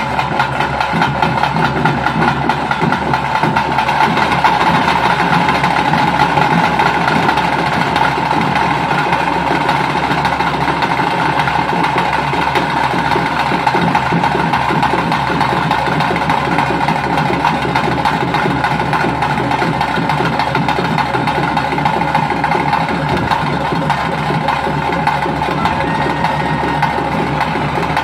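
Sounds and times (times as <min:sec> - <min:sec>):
fast dense drumming: 0:00.0 - 0:28.0.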